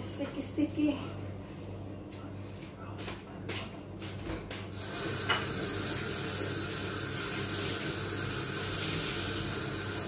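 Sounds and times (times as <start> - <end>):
tap running into sink: 4.3 - 6.2.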